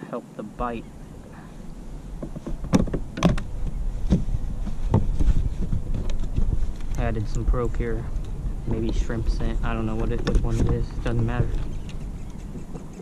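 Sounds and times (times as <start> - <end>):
low rumble: 0.5 - 12.9.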